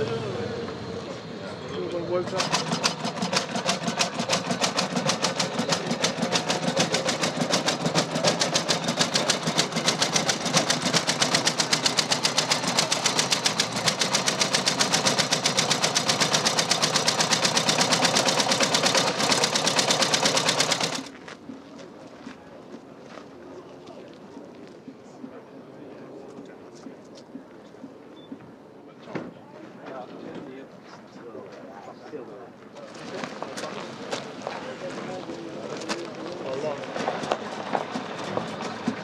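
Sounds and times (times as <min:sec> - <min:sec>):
engine idling clatter: 0:01.9 - 0:21.1, 0:35.7 - 0:39.0.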